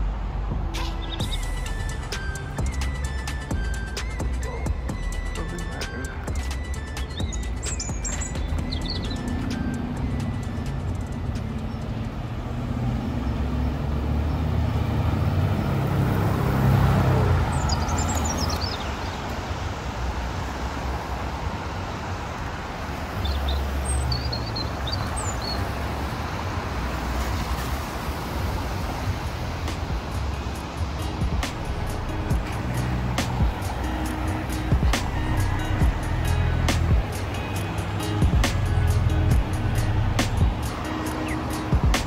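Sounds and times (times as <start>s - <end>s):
car and bus engines: 0.0s - 42.0s
vehicle passing: 0.0s - 42.0s
tyre hiss on wet road: 17.5s - 42.0s.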